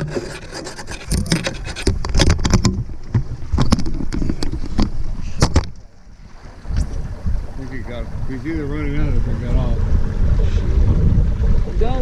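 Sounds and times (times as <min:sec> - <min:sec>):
low rumble: 0:06.7 - 0:12.0.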